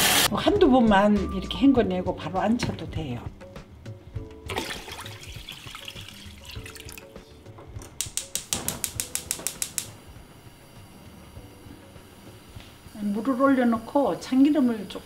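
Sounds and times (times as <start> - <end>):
water running into metal pot: 4.5 - 7.2
gas igniter clicking: 7.8 - 10.1.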